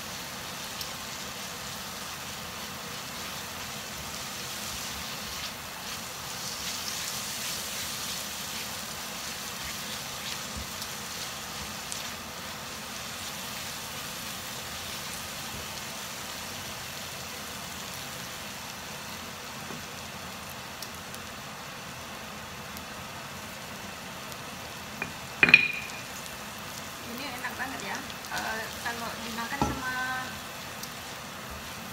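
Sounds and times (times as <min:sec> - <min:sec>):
paste sizzling in hot oil: 0:00.0 - 0:31.9
spatula tapping wok: 0:25.0 - 0:26.2, 0:29.5 - 0:30.0.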